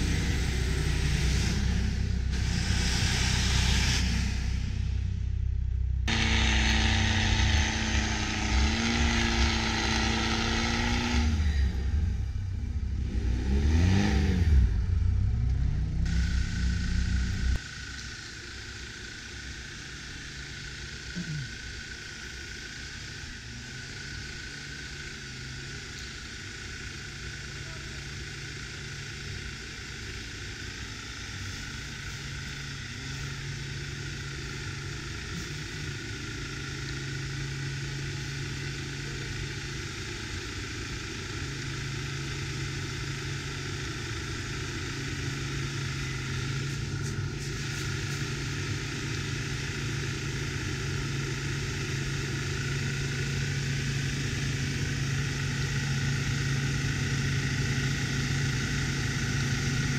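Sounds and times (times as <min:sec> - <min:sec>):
diesel engine running under load: 0:00.0 - 0:59.9.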